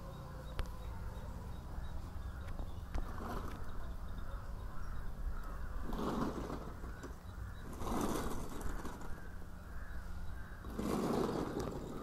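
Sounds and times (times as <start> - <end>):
low outdoor rumble: 0.0 - 12.0
crow cawing: 3.6 - 6.0, 8.4 - 10.8.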